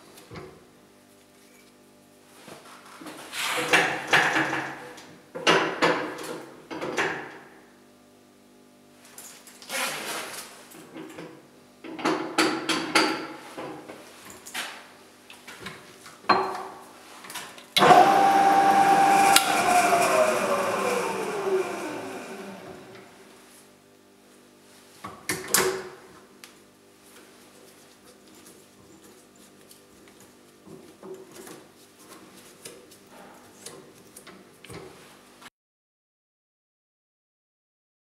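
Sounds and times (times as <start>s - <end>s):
drill whining cutting metal: 17.8s - 23.0s.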